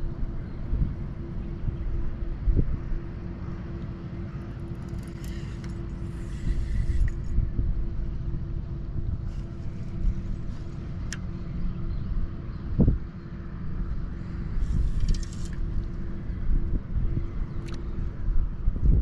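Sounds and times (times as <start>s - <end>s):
faint constant hum: 0.0s - 19.0s
wind buffeting microphone: 0.0s - 19.0s
light rattles: 4.4s - 7.4s.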